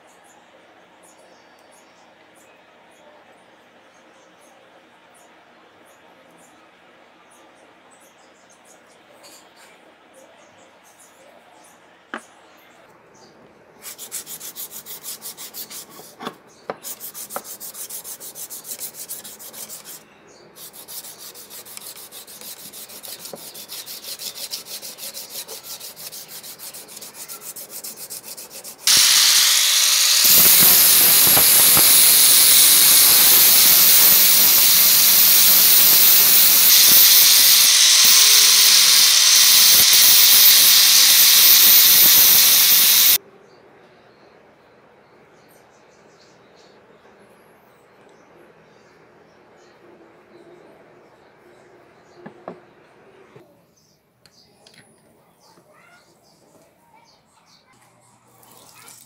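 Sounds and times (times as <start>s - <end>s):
hand sanding wood: 13.8s - 20.0s, 20.6s - 43.2s
angle grinder grinding wood: 20.6s - 43.2s.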